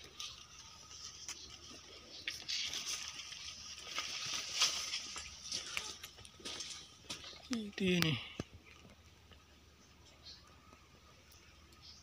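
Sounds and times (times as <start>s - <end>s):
footsteps through dry leaves: 0.0s - 8.0s.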